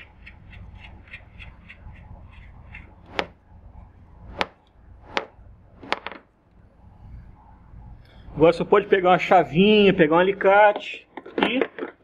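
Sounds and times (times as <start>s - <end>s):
nut spinning on bolt ticking: 0.0s - 3.2s.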